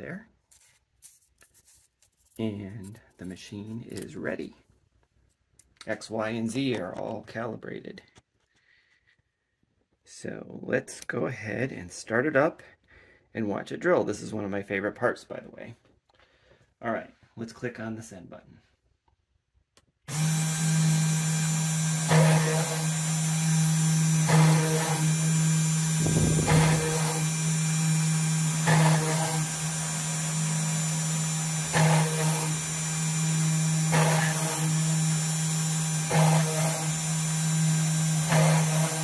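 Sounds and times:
drill bit cutting circuit board: 20.1 - 39.0
spindle motor humming: 20.1 - 39.0.

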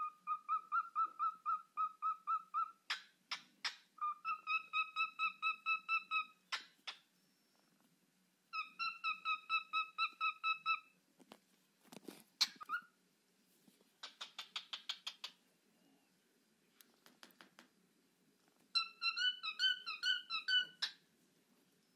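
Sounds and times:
cockatiel screechy calls: 0.0 - 7.0, 8.5 - 10.9, 12.4 - 13.0, 18.7 - 21.0
cockatiel whistling: 0.0 - 7.0, 8.6 - 10.9, 18.7 - 21.0.

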